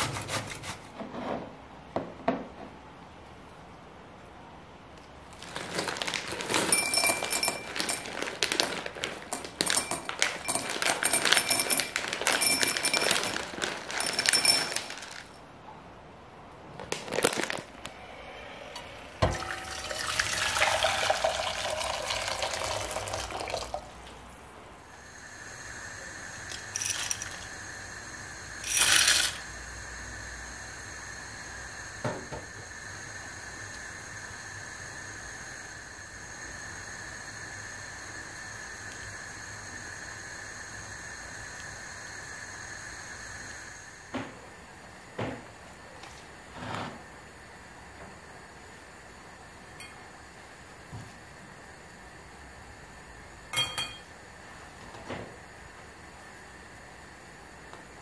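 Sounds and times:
dry pasta pouring into glass: 0:05.4 - 0:15.4, 0:19.3 - 0:23.9, 0:26.4 - 0:27.6, 0:28.6 - 0:29.4
faint hiss with high tone: 0:17.8 - 0:24.0, 0:24.8 - 0:44.9
water pouring into pot: 0:19.2 - 0:24.0, 0:28.6 - 0:29.4.

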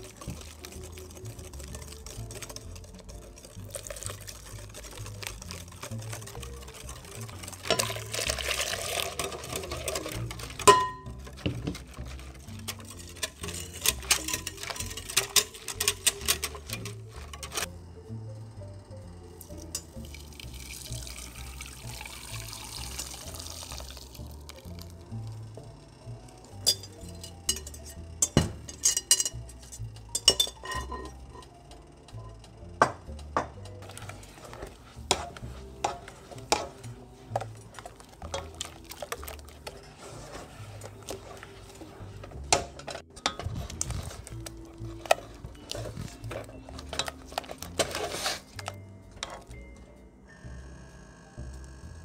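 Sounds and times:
whisk clinking against glass bowl: 0:00.0 - 0:17.5, 0:26.6 - 0:31.4
spatula scraping a saucepan: 0:00.0 - 0:17.7, 0:26.5 - 0:31.5, 0:33.7 - 0:49.6
light background music: 0:00.0 - 0:52.0.

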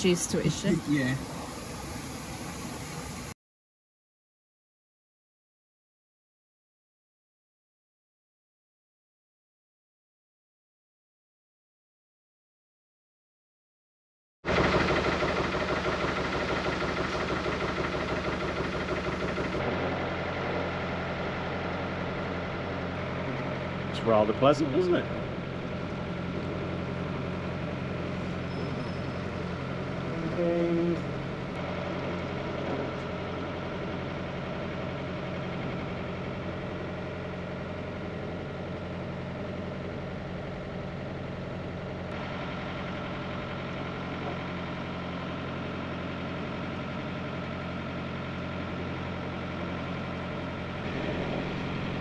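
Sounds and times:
boat engine humming: 0:00.0 - 0:03.3, 0:14.5 - 0:52.0.

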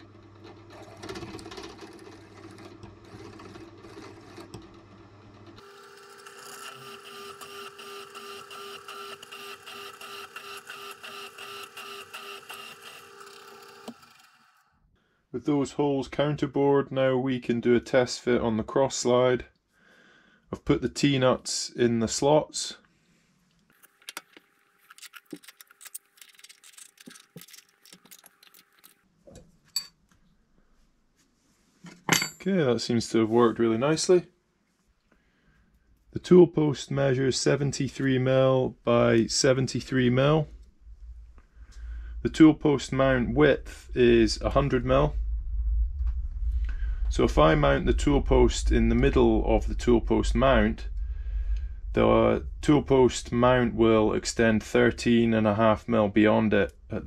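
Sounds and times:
drill press cutting steel: 0:05.6 - 0:14.6.

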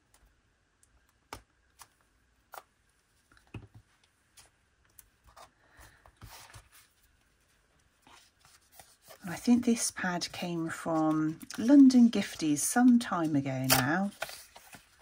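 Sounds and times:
paper rustling: 0:05.2 - 0:15.0.

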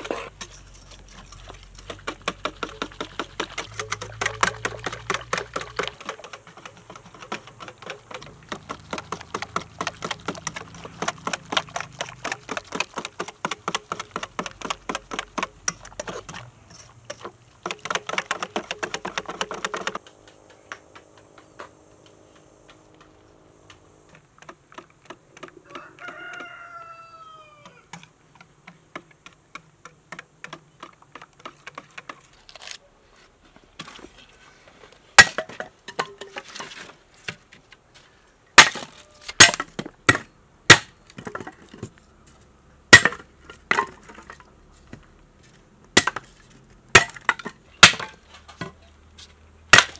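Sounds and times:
rooster crowing: 0:25.6 - 0:27.9.

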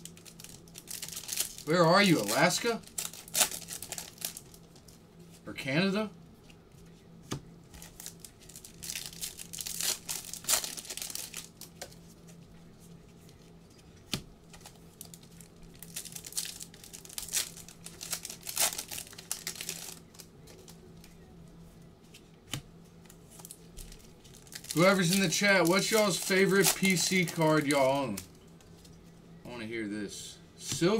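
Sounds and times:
foil wrappers crinkling: 0:00.0 - 0:05.0, 0:07.7 - 0:12.4, 0:14.5 - 0:21.1, 0:23.0 - 0:28.9
foil packs tearing: 0:00.1 - 0:04.4, 0:07.8 - 0:11.5, 0:14.6 - 0:20.2, 0:24.3 - 0:28.2.

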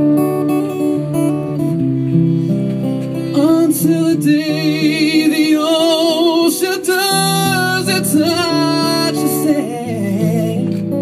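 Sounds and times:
strummed acoustic guitar: 0:00.0 - 0:11.0
man singing with vibrato: 0:03.3 - 0:11.0.

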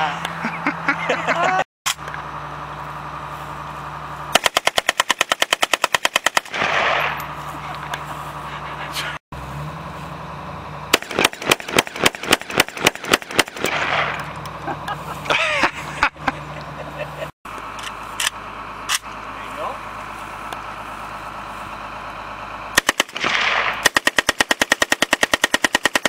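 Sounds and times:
rapid shots from another firearm: 0:04.4 - 0:07.1, 0:11.0 - 0:14.1, 0:22.8 - 0:26.0.

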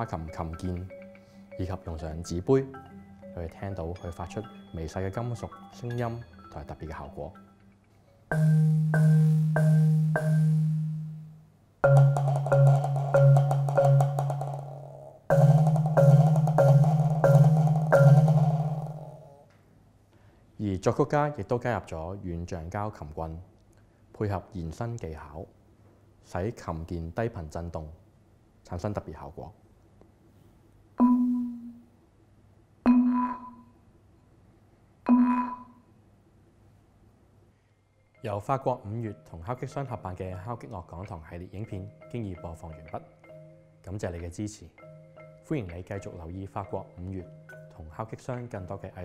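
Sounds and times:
low marimba notes: 0:08.3 - 0:19.4, 0:31.0 - 0:31.9, 0:32.9 - 0:33.7, 0:35.1 - 0:35.8, 0:44.8 - 0:47.8.

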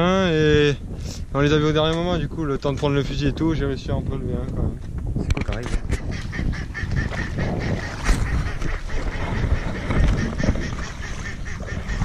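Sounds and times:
ducks calling: 0:05.6 - 0:12.0
water sloshing from wading: 0:06.1 - 0:12.0.

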